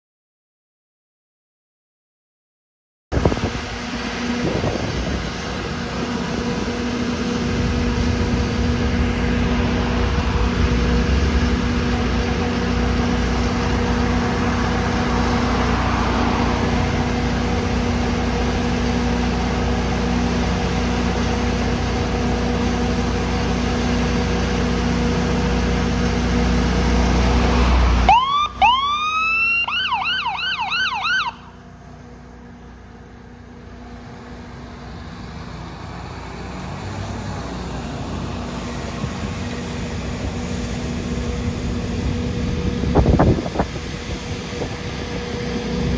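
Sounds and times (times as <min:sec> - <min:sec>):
diesel engine rumbling: 0:03.1 - 0:45.9
electronic siren yelping: 0:27.6 - 0:31.6.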